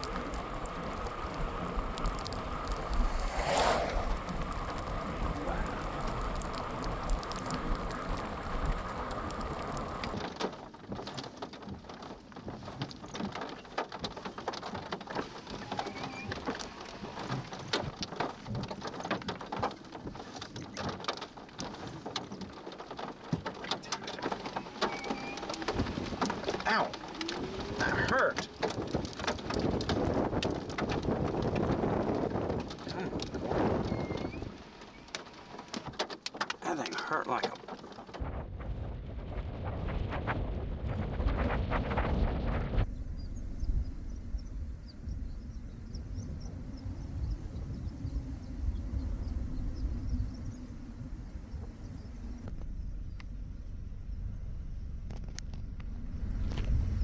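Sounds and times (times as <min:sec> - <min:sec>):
hailstones ticking: 0:00.0 - 0:03.4, 0:04.0 - 0:42.6
low rumble: 0:00.0 - 0:10.2, 0:37.6 - 0:57.0
rain hiss: 0:00.0 - 0:11.2, 0:11.9 - 0:40.1.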